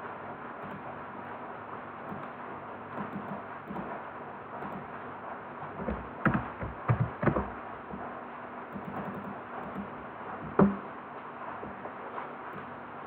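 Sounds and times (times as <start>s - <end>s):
faint room hum: 0.0s - 13.0s
keyboard and mouse clicks: 3.0s - 3.9s, 8.7s - 9.9s.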